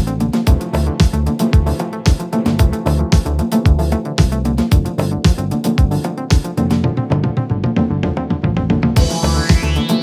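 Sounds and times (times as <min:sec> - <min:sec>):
kick drum: 0:00.0 - 0:06.6, 0:08.8 - 0:09.8
bass line: 0:00.0 - 0:10.0
electronic music: 0:00.0 - 0:10.0.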